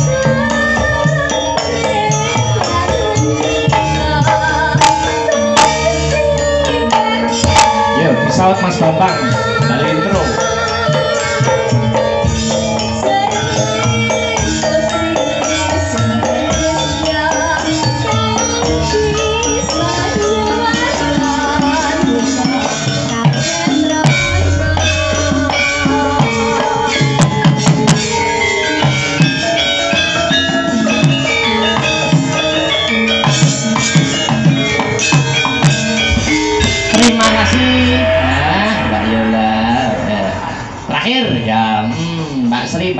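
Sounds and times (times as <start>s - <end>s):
woman singing with wavering voice: 0.0s - 40.9s
gamelan ensemble playing: 0.0s - 42.9s
deep low note: 36.2s - 41.0s.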